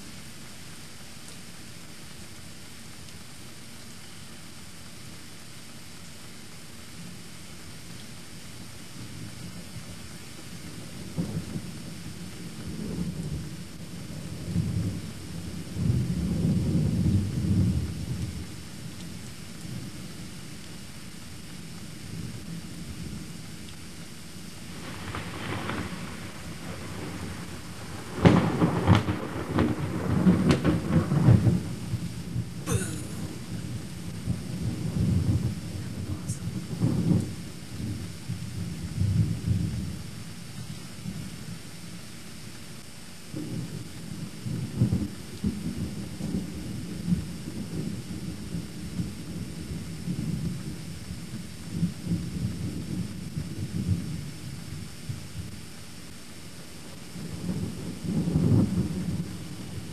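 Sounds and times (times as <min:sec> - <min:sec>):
steady rain: 0:00.0 - 0:59.9
thunderclap with deep rumble: 0:10.6 - 0:18.7, 0:24.7 - 0:41.4, 0:43.3 - 0:55.6, 0:57.1 - 0:59.9.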